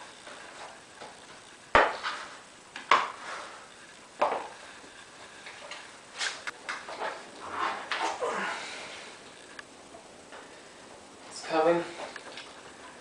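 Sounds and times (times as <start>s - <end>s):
tire scraping over rim: 6.2s - 8.2s.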